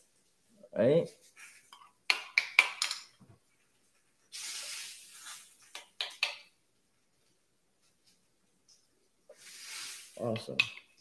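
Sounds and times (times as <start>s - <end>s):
short hiss: 4.3s - 5.6s, 9.3s - 10.4s.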